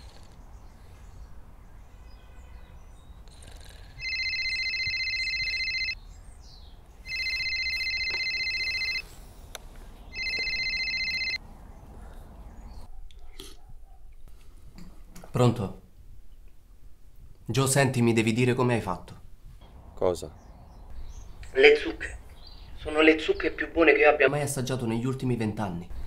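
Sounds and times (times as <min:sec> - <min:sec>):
electronic phone ringing: 0:04.0 - 0:06.0, 0:07.1 - 0:09.1, 0:10.1 - 0:11.4.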